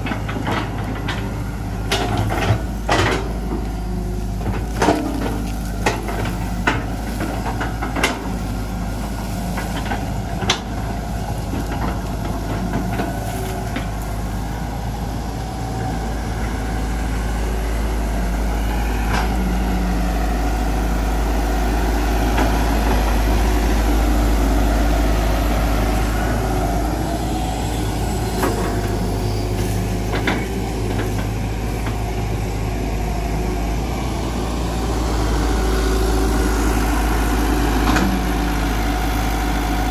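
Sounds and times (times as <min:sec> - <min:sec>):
bucket and tracks clanking: 0:00.0 - 0:14.4, 0:22.2 - 0:32.4
excavator diesel engine running: 0:00.0 - 0:39.9.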